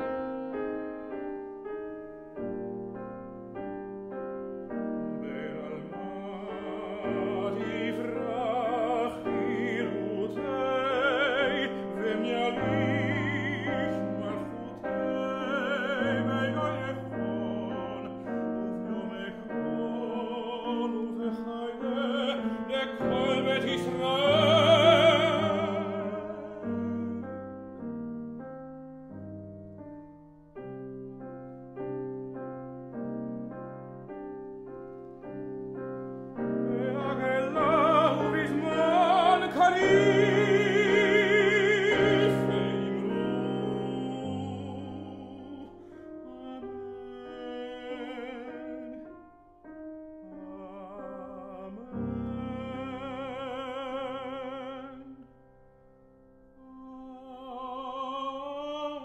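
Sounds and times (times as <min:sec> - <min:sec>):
grand piano: 0:00.0 - 0:59.0
man singing operatically: 0:05.2 - 0:27.3, 0:36.4 - 0:49.1, 0:50.2 - 0:55.2, 0:56.7 - 0:59.0.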